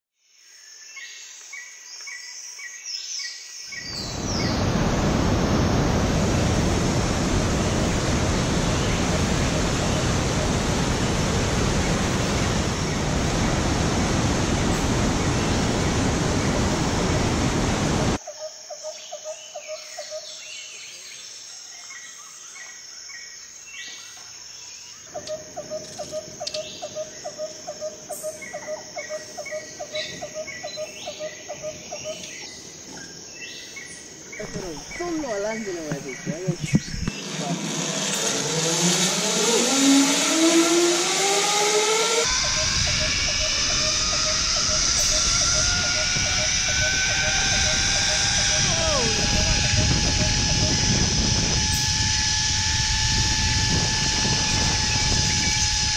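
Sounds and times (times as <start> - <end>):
birds chirping: 3.7 - 4.8, 23.5 - 37.7, 42.3 - 51.8
water rushing over rapids: 4.1 - 18.2
repeated bird call: 34.4 - 37.5, 42.3 - 50.9.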